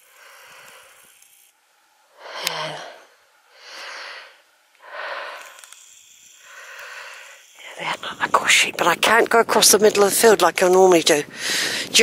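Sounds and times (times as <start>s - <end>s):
man breathing: 2.1s - 5.7s, 6.4s - 7.5s, 11.3s - 12.0s.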